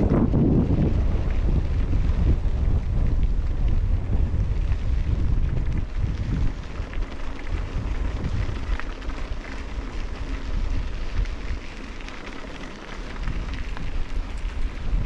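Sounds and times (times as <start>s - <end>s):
wind buffeting microphone: 0.0s - 15.0s
tyres rattling over gravel: 4.3s - 15.0s.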